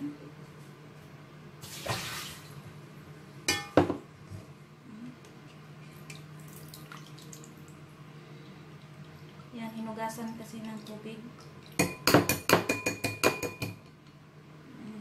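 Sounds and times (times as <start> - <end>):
faint low hum: 0.0 - 11.7, 14.0 - 15.0
glass bowl clinking: 3.5 - 4.0, 11.8 - 13.8.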